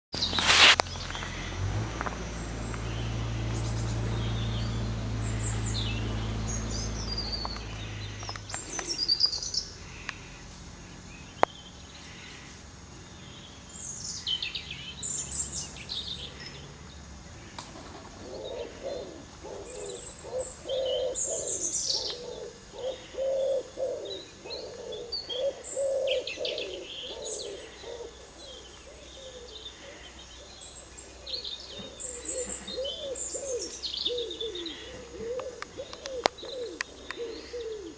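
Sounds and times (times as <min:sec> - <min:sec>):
low steady hum: 0:00.2 - 0:37.9
wild birds chirping: 0:00.2 - 0:37.9
low repeating bird call: 0:18.2 - 0:30.2, 0:31.2 - 0:37.9.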